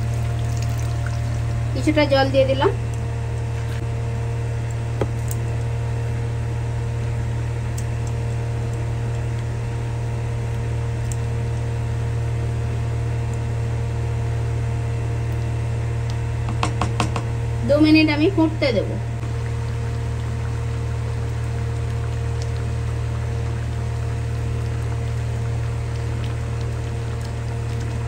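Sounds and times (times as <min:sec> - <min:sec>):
motor humming: 0:00.0 - 0:28.0
spatula tapping a pan: 0:16.5 - 0:17.3.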